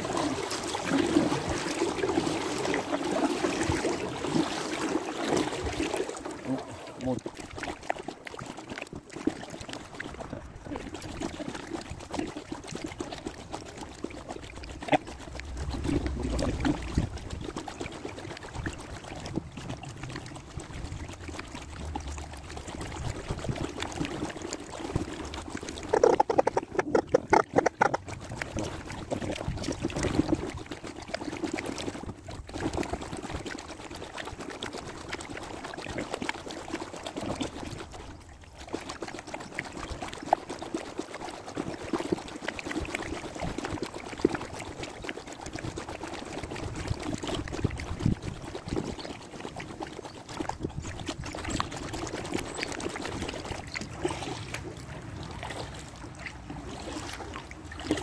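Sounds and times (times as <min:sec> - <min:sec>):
paddle dipping into water: 0:00.0 - 0:33.6, 0:46.9 - 0:58.0
water dripping off paddle: 0:25.2 - 0:28.9.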